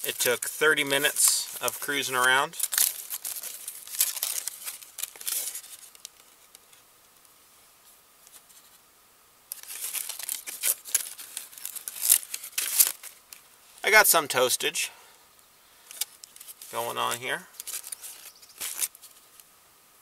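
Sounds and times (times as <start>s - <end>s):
aluminium foil crinkling: 0.0s - 7.3s, 9.5s - 13.6s, 15.8s - 19.5s.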